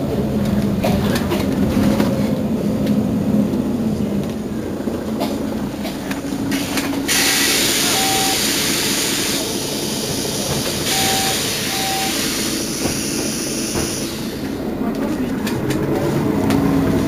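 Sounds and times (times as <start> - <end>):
bus diesel engine running: 0.0 - 17.0
compressed air hiss: 6.6 - 10.0
short electronic beeps: 7.8 - 8.5, 10.9 - 12.2.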